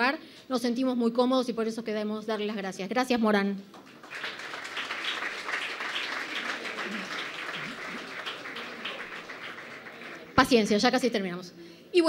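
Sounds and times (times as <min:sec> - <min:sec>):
audience applauding: 0:03.8 - 0:10.6
faint voices: 0:06.1 - 0:10.4.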